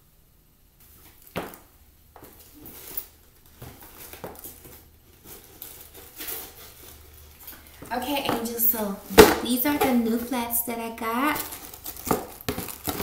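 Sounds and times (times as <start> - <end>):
boots stepping on tile floor: 0.8 - 10.4.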